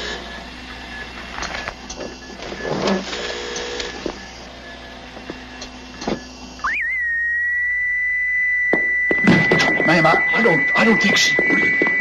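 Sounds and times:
high electronic alarm tone: 6.6s - 12.0s.

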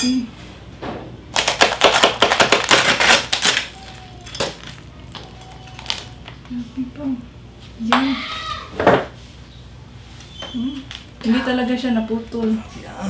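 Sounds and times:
roasted pig skin crackling: 1.3s - 6.6s.

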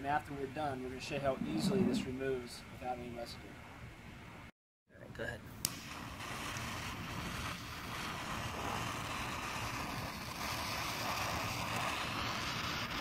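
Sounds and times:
torch flame hissing: 5.6s - 13.0s.

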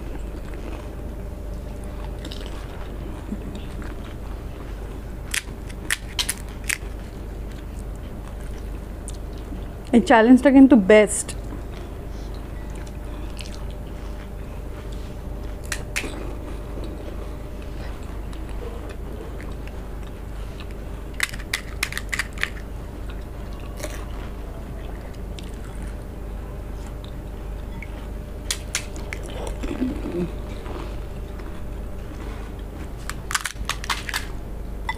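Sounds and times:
low steady hum: 0.0s - 34.9s
crisp shells crunching and chewing: 1.7s - 4.2s, 5.2s - 9.5s, 12.7s - 17.0s, 18.3s - 24.4s, 28.5s - 31.6s, 32.9s - 34.4s.

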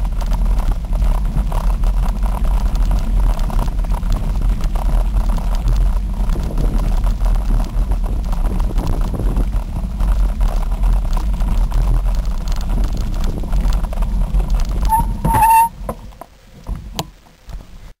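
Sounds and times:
wind rumble on microphone: 0.0s - 17.9s
bicycle tyres on dirt trail: 0.0s - 18.0s
brief high squeal: 14.9s - 15.8s.

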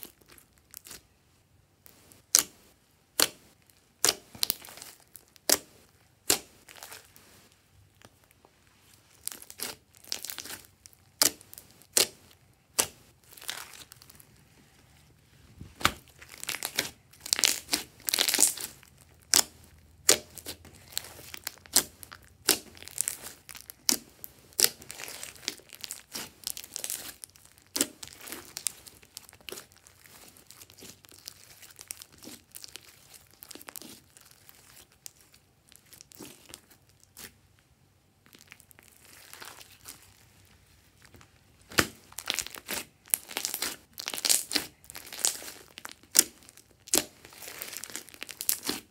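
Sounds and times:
slime popping and crackling: 4.0s - 7.0s, 9.2s - 14.2s, 15.8s - 37.3s, 41.7s - 48.9s.

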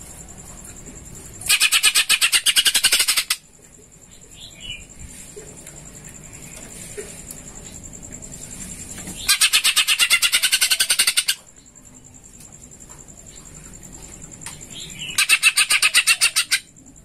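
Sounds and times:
bird chattering song: 1.4s - 3.4s, 9.2s - 11.4s, 14.6s - 16.7s.

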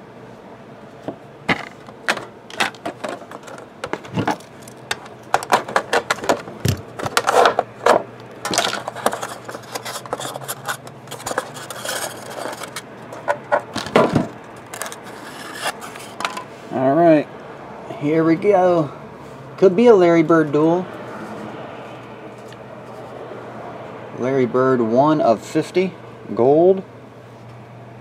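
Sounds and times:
plastic and foam rustling: 1.5s - 16.2s.

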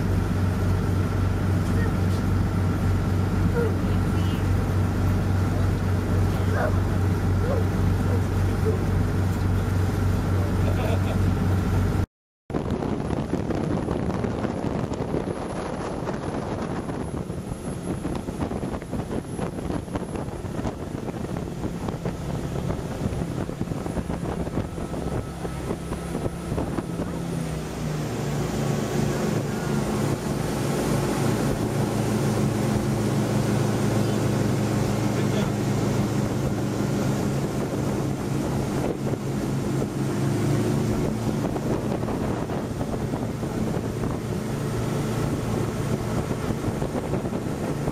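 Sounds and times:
churning wake water: 0.0s - 47.9s
motorboat engine running: 0.0s - 47.9s
wind on microphone: 11.3s - 47.9s.

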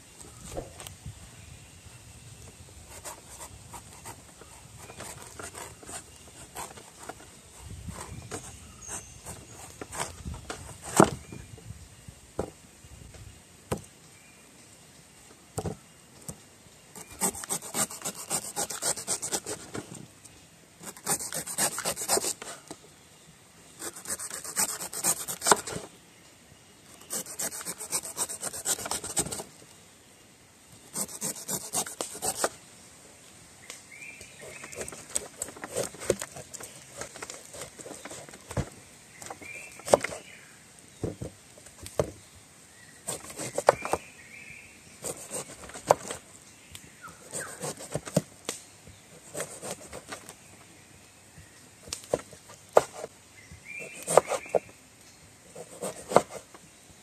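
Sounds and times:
knife scraping fruit skin: 2.9s - 11.2s, 17.0s - 19.8s, 20.8s - 22.7s, 23.8s - 25.8s, 27.0s - 29.5s, 30.9s - 32.6s, 34.4s - 38.6s, 39.4s - 40.4s, 43.0s - 44.0s, 45.0s - 46.2s, 47.3s - 48.3s, 49.2s - 50.3s, 51.9s - 53.1s, 53.8s - 54.6s, 55.5s - 56.5s.

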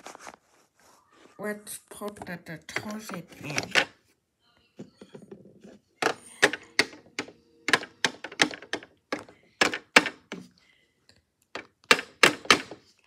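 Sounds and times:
soft plastic rustle: 0.0s - 2.4s
sharp plastic clicks and knocks: 6.0s - 10.5s, 11.5s - 12.8s.

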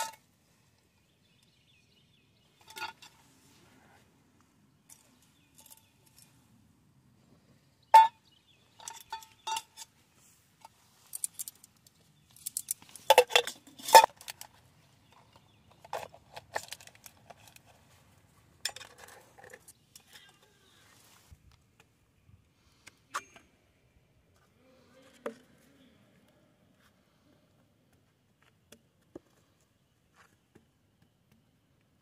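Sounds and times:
metal objects clinking: 0.0s - 0.2s, 4.9s - 6.3s, 8.0s - 9.9s, 11.0s - 14.5s.

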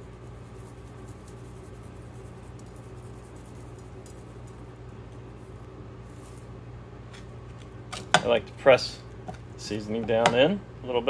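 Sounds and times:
seasoning sprinkled on steak: 0.0s - 7.6s
air fryer humming: 0.0s - 11.0s.

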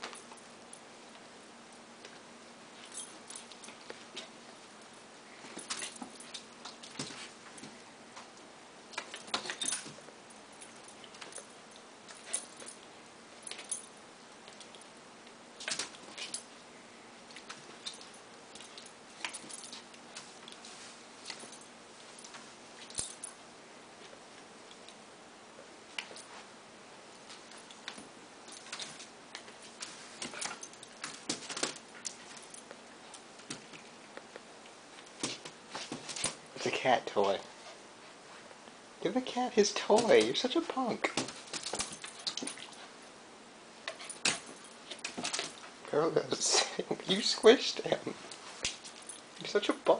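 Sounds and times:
faint clicks and scuffling: 2.0s - 16.5s, 17.2s - 23.4s, 25.6s - 38.8s, 39.6s - 43.1s, 43.8s - 46.4s
light metallic jingling: 2.8s - 14.9s, 17.3s - 23.4s, 27.2s - 33.7s, 39.1s - 43.2s, 43.8s - 49.9s.

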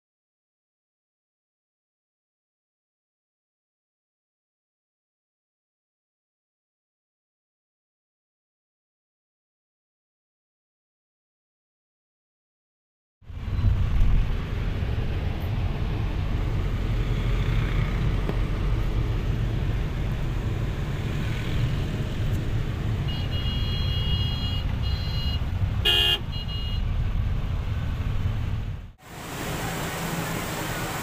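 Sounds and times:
vehicle rumble from inside cabin: 13.3s - 31.0s
vehicle horns tooting: 23.0s - 26.9s.

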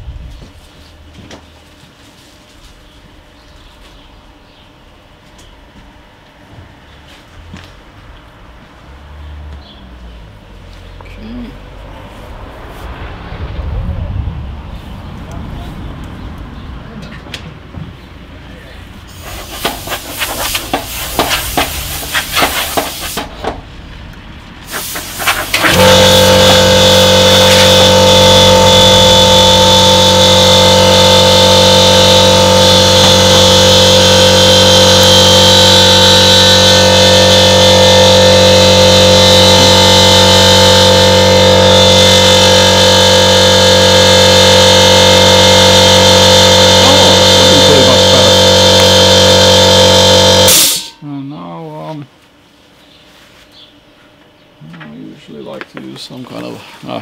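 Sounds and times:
air compressor motor running: 18.3s - 23.8s, 24.6s - 51.0s.

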